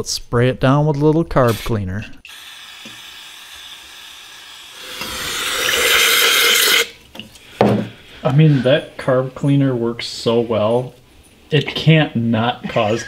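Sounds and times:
aerosol spray hissing: 2.3s - 6.9s.

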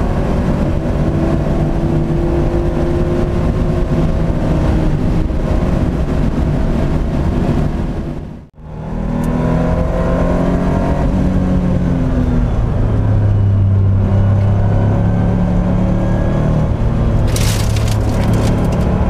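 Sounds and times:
race car engine under load: 17.0s - 19.0s
sharp engine crackling: 17.2s - 19.0s.

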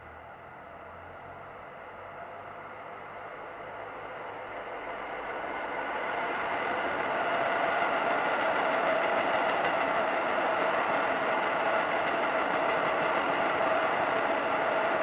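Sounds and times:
diesel train engine growl: 0.0s - 15.0s
train wheels rumbling: 0.0s - 15.0s.

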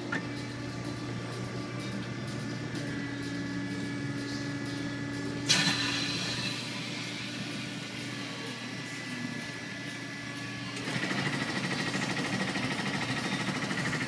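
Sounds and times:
machine humming with held tones: 0.0s - 14.0s
loud hiss: 5.4s - 7.5s.

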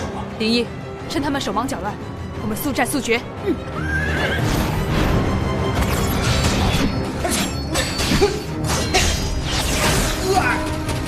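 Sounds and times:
dramatic background music: 0.0s - 11.0s.

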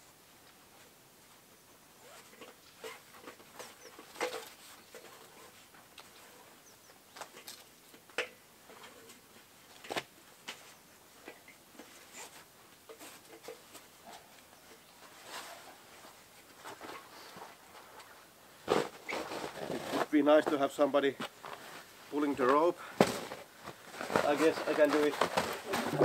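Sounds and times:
faint rustling: 8.6s - 26.0s.

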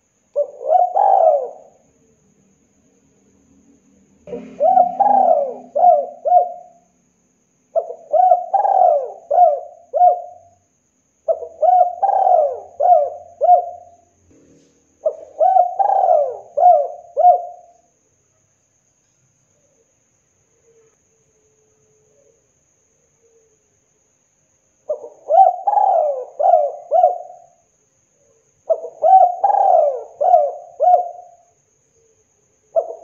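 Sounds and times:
dove cooing: 0.4s - 1.8s, 4.3s - 6.9s, 7.7s - 10.5s, 11.3s - 14.0s, 15.0s - 17.8s, 24.9s - 27.6s, 28.7s - 31.4s, 32.7s - 33.0s.

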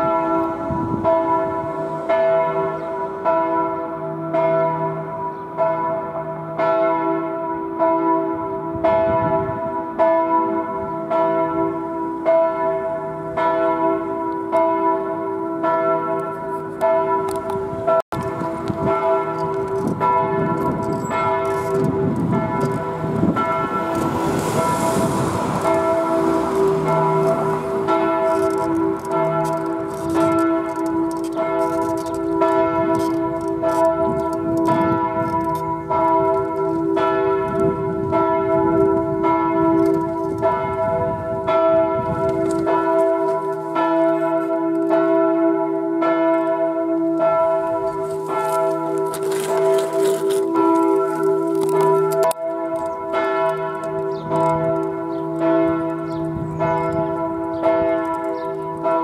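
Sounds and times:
church bells ringing: 0.0s - 59.0s.

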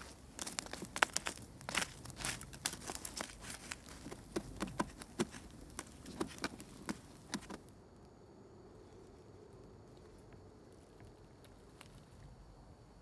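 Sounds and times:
fire crackling and popping: 0.0s - 7.8s.

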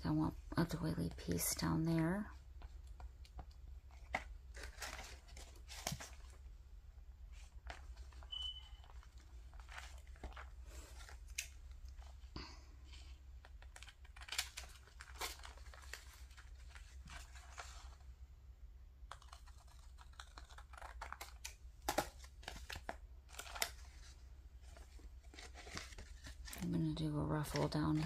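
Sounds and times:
paper rustling and crinkling: 2.6s - 6.5s, 7.3s - 18.1s, 19.1s - 28.0s
scissors snipping paper: 19.1s - 22.1s.

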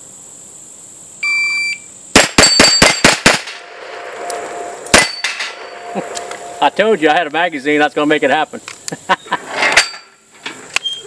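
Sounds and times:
pistol shots: 2.2s - 4.2s, 4.9s - 6.2s
steel plates clanging: 3.5s - 7.2s, 9.5s - 10.6s.

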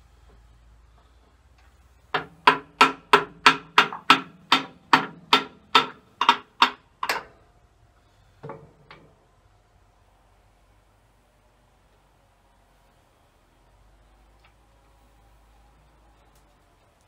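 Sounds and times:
hammer striking metal: 2.2s - 7.3s.

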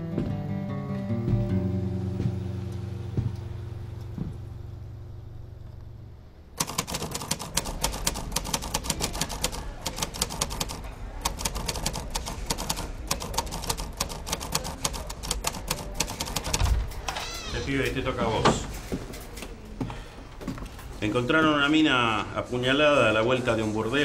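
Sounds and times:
low background music: 0.0s - 6.9s
rapid typewriter key strikes: 6.6s - 16.9s.

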